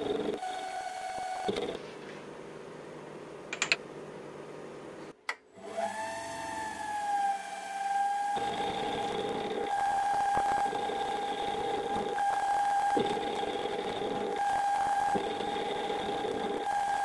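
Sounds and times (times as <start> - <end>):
milling spindle whine: 0.0 - 1.8, 6.5 - 17.0
cutter cutting brass: 8.4 - 17.0.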